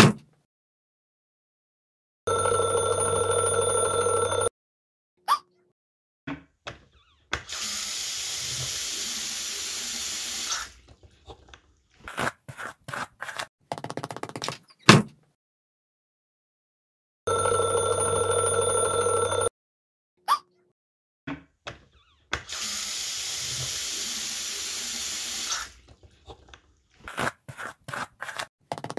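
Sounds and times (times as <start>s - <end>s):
alarm clock ringing: 2.3s - 4.5s, 17.3s - 19.5s
water running: 7.5s - 10.9s, 22.5s - 25.9s.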